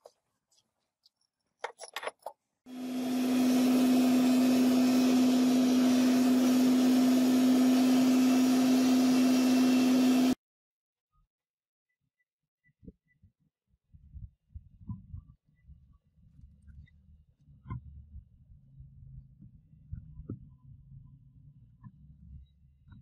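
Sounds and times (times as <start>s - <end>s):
forge blower rushing whir: 2.7s - 10.4s.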